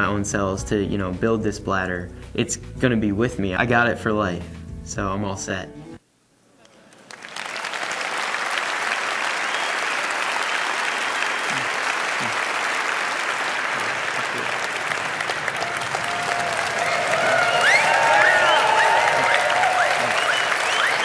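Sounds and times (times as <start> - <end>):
audience applauding: 6.7 - 21.0
audience cheering: 7.1 - 21.0.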